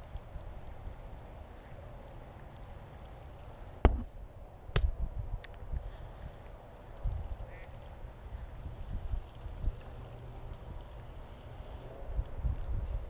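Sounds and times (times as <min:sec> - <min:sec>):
wind rumble on microphone: 0:03.8 - 0:13.0.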